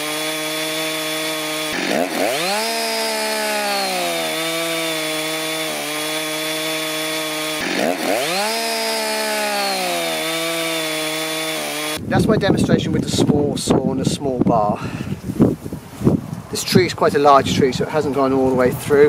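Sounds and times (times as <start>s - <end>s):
chainsaw cutting through log: 0.0s - 12.0s.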